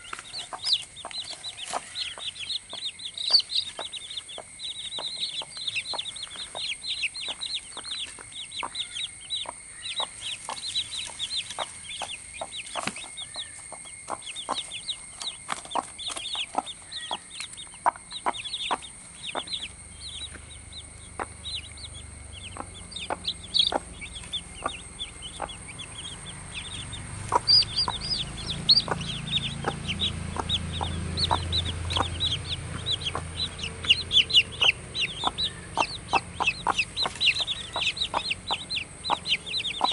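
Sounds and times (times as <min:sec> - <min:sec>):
chicks peeping: 0:00.0 - 0:39.9
hen clucking: 0:00.0 - 0:39.9
low rumble: 0:18.4 - 0:39.9.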